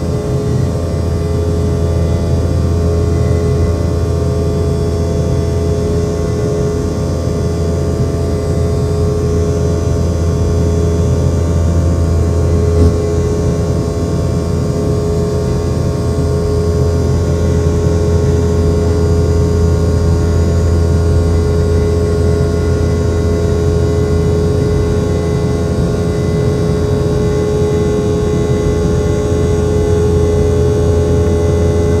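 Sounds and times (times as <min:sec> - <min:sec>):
airplane cabin engine drone: 0:00.0 - 0:32.0.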